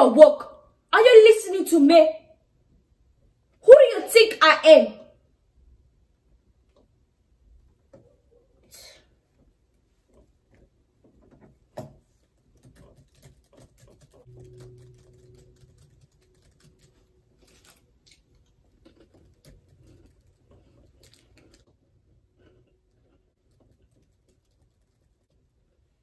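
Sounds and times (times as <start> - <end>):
laptop keyboard typing: 12.2 - 18.2, 23.4 - 25.5.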